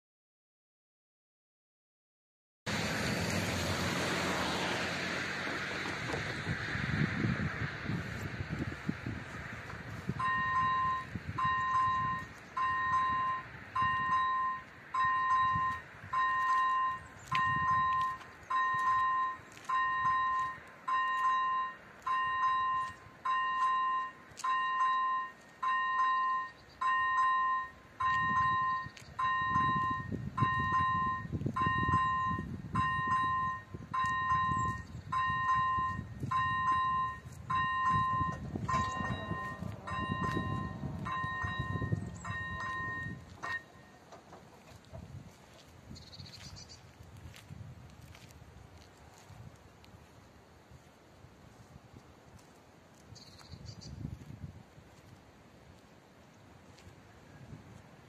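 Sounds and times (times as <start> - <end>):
level crossing bell dinging: 10.2 - 44.0.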